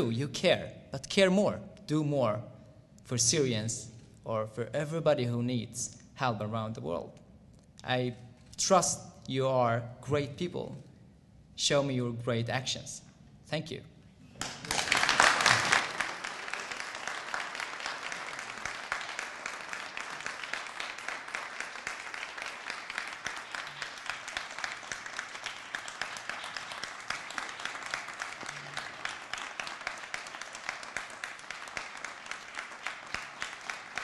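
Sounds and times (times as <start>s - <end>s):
audience applauding: 14.4s - 34.0s.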